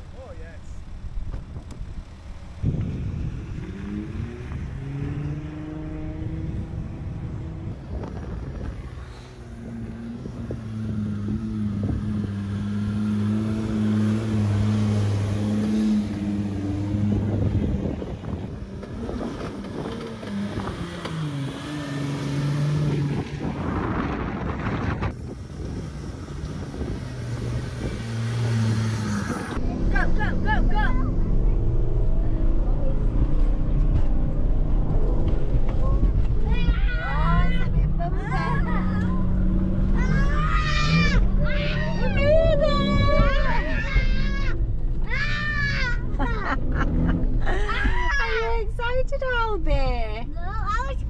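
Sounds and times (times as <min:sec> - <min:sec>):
suv engine revving in mud: 0:02.7 - 0:07.8, 0:09.6 - 0:24.5, 0:25.6 - 0:30.3.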